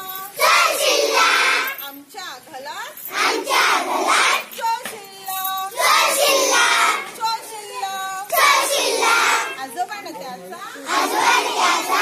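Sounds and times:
girls singing in chorus: 0.0 - 1.8, 3.1 - 9.6, 10.8 - 12.0.

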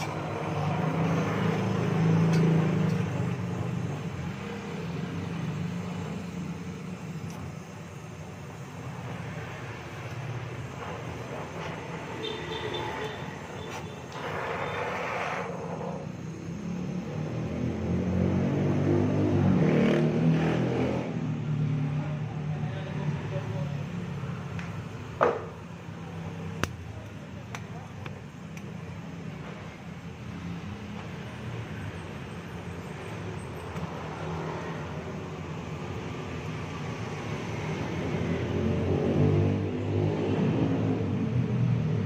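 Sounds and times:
steady hiss: 0.0 - 18.2
welding torch flame hissing: 0.0 - 42.0.

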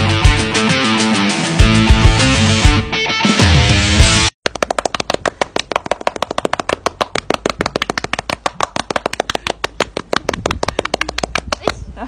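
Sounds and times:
rock music: 0.0 - 4.3.

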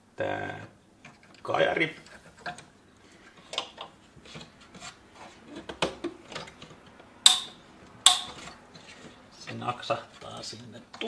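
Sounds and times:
plastic rubbing and knocks: 3.4 - 7.0
sharp plastic snaps: 5.6 - 8.4.

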